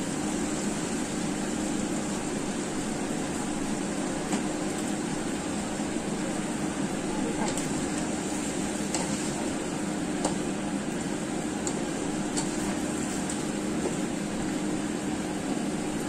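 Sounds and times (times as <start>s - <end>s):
fan hum: 0.0s - 16.0s
spatula scraping wok: 8.2s - 9.5s.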